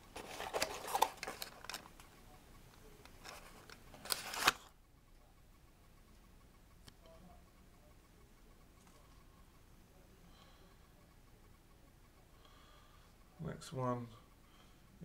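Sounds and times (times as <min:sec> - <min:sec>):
toy box rustling and clicking: 0:00.1 - 0:02.0, 0:03.1 - 0:04.7.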